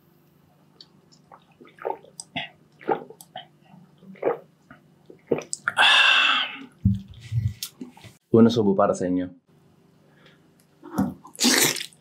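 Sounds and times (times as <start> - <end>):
person swallowing gulps: 1.2 - 7.2.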